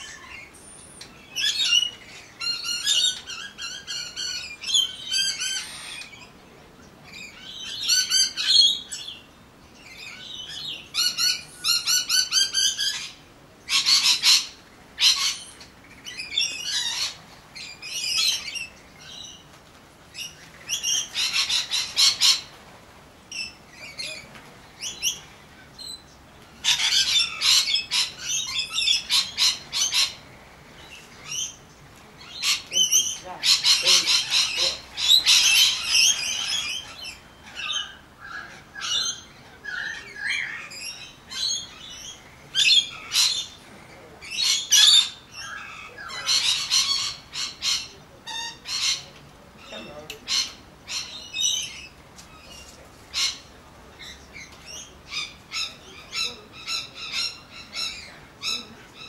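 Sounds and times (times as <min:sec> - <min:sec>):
magpies chattering: 0:32.2 - 0:59.0.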